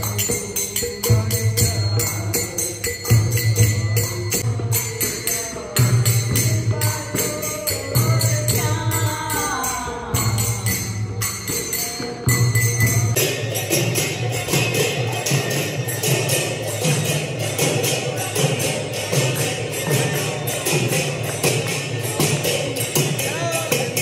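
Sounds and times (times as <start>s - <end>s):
jingling percussion: 0.0s - 24.0s
person singing: 4.0s - 12.4s.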